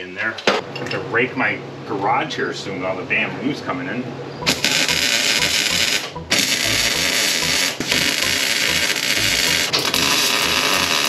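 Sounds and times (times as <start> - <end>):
arc welding hiss: 9.8 - 11.0.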